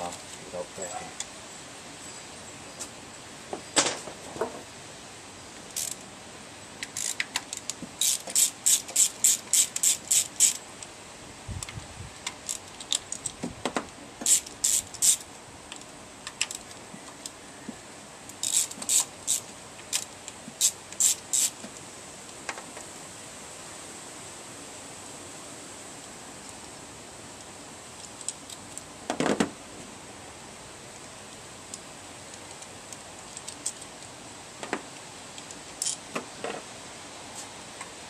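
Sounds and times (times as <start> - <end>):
ratchet wrench clicking: 5.8 - 6.0, 6.8 - 10.6, 14.2 - 15.2, 18.4 - 21.6.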